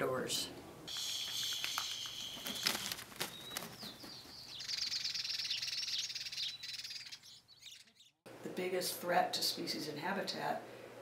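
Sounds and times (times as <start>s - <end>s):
buzzy high-pitched bird chattering: 0.9s - 2.7s, 4.6s - 8.1s
bird chirps: 0.9s - 8.2s.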